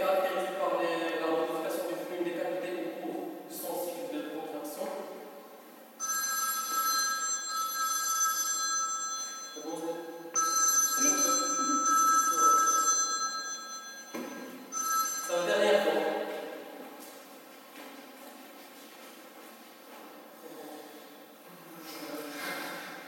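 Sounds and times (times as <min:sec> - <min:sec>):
electronic phone ringtone: 0:06.0 - 0:16.0.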